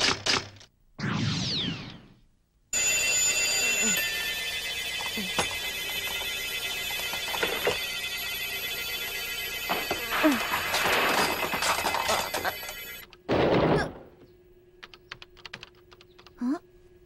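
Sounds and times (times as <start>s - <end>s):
alarm clock bell ringing: 2.8s - 13.0s.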